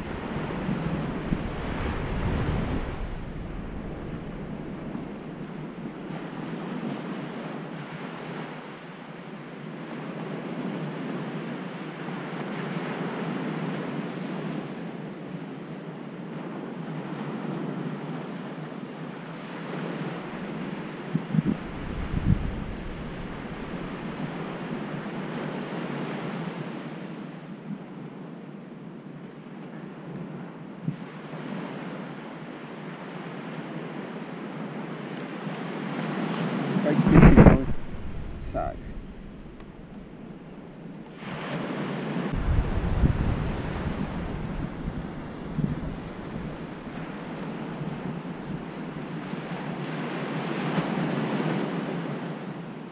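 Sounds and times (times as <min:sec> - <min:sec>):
wind on microphone: 0:00.0 - 0:07.2, 0:20.0 - 0:25.3, 0:36.8 - 0:41.5, 0:42.1 - 0:49.6
ocean surf breaking: 0:00.0 - 0:08.4, 0:19.4 - 0:26.8, 0:35.4 - 0:52.4
brief thump: 0:37.0 - 0:40.0.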